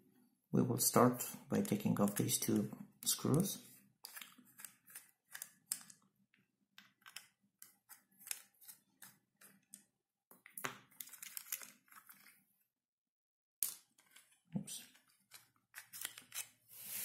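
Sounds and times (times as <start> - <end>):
screwdriver clicks and scrapes: 15.3 - 16.6.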